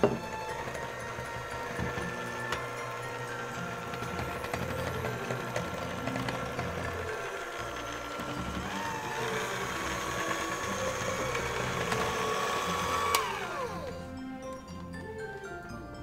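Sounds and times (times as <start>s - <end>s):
blender motor running: 0.0s - 15.1s
blender switch click: 11.2s - 13.8s.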